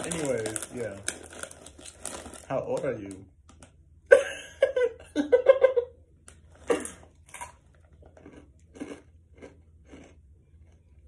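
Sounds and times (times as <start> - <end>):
person laughing: 4.1 - 6.0
chewing crunchy snack: 6.6 - 11.0.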